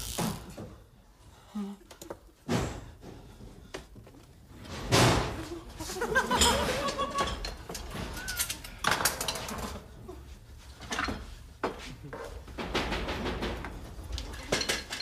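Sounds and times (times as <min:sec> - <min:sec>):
kitchen items knocking and clattering: 0:04.6 - 0:09.9, 0:10.8 - 0:15.0.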